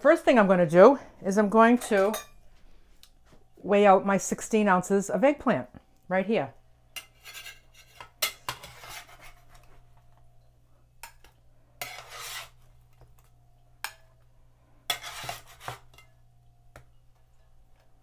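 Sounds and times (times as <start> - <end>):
low steady hum: 0.0 - 18.0
utensil scraping a pan: 7.0 - 9.8, 11.8 - 13.0, 14.8 - 16.2.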